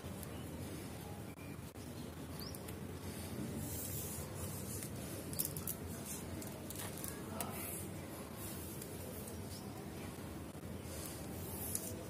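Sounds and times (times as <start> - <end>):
plastic wire rustling and scratching: 3.6 - 9.7, 10.9 - 12.0.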